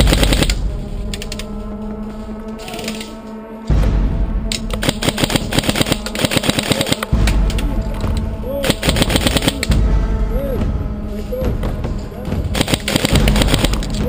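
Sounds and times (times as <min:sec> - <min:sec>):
airsoft rifle firing full-auto: 0:00.0 - 0:00.6, 0:04.7 - 0:07.2, 0:08.6 - 0:09.7, 0:12.6 - 0:13.9
low rumble: 0:07.1 - 0:12.6.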